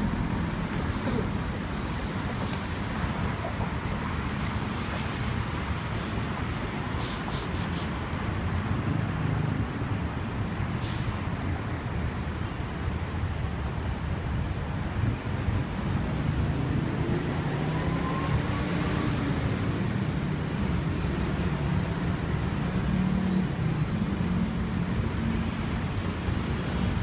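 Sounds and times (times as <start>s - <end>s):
motor vehicles passing: 15.5s - 27.0s.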